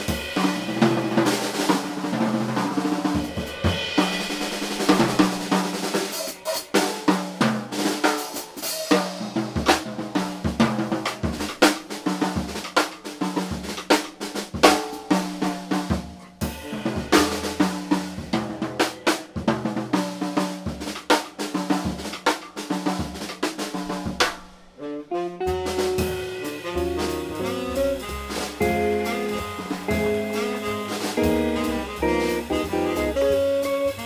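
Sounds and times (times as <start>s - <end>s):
drum kit: 0.0s - 34.0s
electric guitar: 24.8s - 34.0s
double bass: 25.4s - 34.0s.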